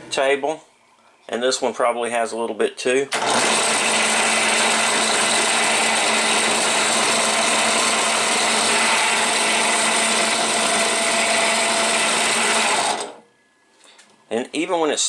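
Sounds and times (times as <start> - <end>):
drill press motor running: 3.2 - 13.2.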